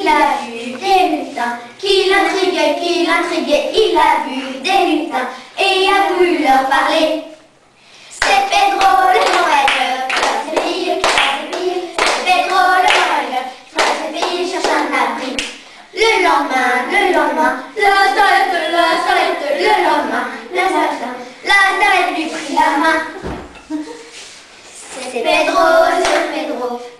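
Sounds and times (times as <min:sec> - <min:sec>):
children singing: 0:00.0 - 0:07.4, 0:08.2 - 0:24.0, 0:24.8 - 0:26.9
hand claps: 0:08.2 - 0:13.2, 0:13.8 - 0:14.8.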